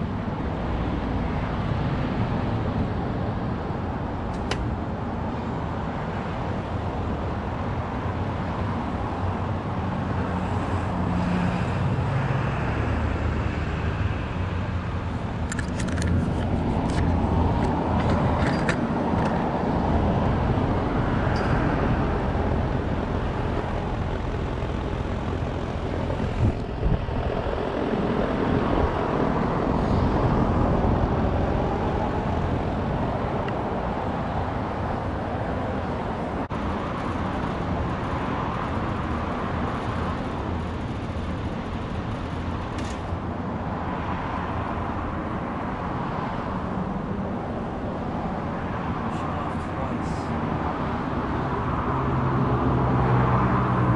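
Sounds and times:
condenser fan rushing: 16.1 - 42.8.

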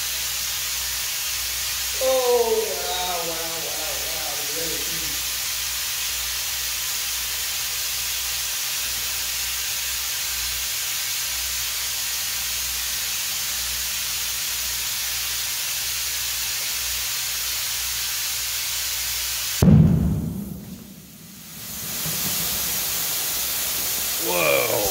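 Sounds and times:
compressed air hissing: 0.0 - 24.9
ball bursting with loud bang: 19.6 - 24.0.

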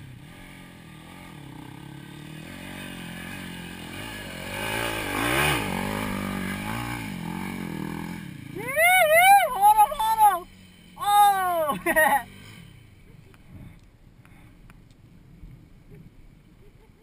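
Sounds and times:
dirt bike engine revving: 0.0 - 13.1.

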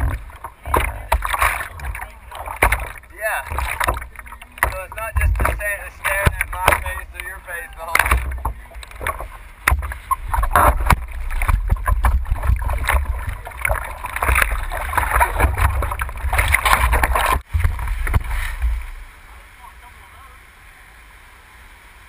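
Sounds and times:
water splashing against surfboard: 0.0 - 20.0
wind on microphone: 8.0 - 19.0.

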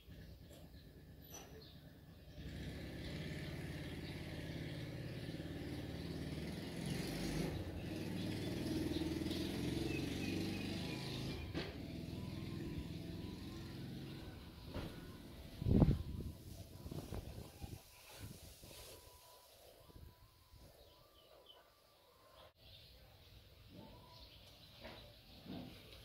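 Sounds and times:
vehicle engine rumble: 0.0 - 20.6.

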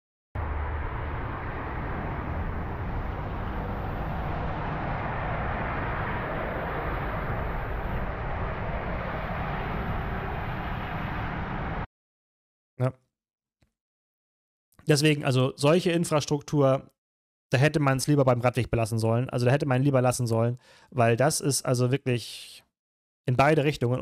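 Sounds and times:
lorry overtaking: 0.4 - 11.8
traffic noise: 0.4 - 11.9
wind rumble on microphone: 0.4 - 11.9.

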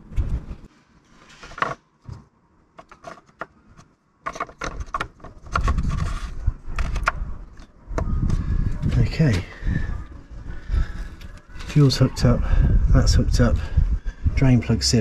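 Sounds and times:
small plastic clicks and knocks: 1.6 - 8.4.

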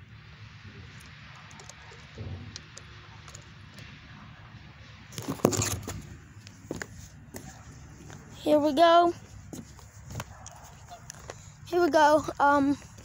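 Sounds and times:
phone rubbing against clothing: 5.2 - 8.3.

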